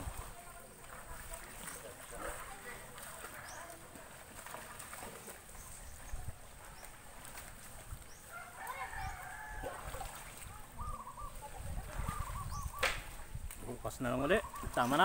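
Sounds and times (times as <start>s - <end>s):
bird calls: 8.0s - 13.3s, 14.1s - 15.0s.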